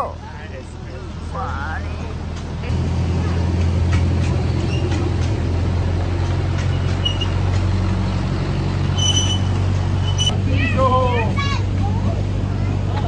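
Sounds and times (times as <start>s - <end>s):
miniature train droning: 1.1s - 10.3s
short high squeaks: 4.6s - 5.1s, 6.6s - 7.5s, 8.9s - 10.4s.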